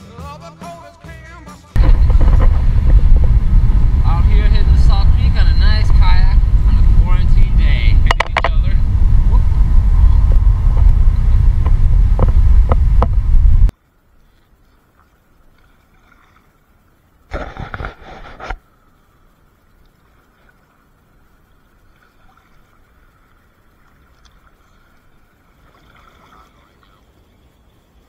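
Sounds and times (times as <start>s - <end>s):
wind buffeting microphone: 1.8s - 13.7s
faint moving water: 1.8s - 28.0s.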